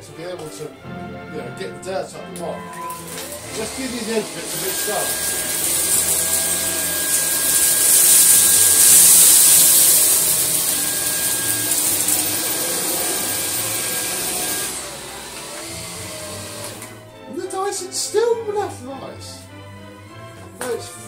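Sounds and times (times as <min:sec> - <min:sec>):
vacuum cleaner whine and air rush: 0:03.0 - 0:17.6.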